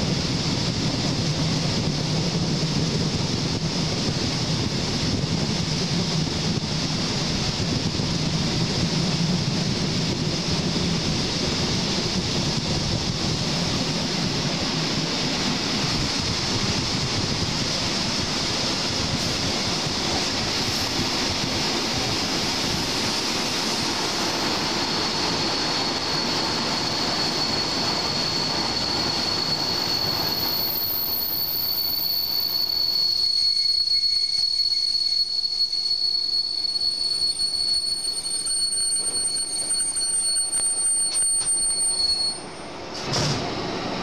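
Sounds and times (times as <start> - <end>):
train wheels rumbling on rails: 0.0 - 44.0
high wheel squeal: 15.5 - 43.1.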